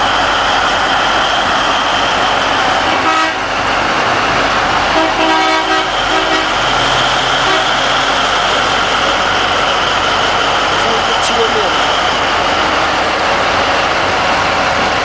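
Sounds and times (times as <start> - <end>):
heavy diesel truck driving past: 0.0 - 15.0.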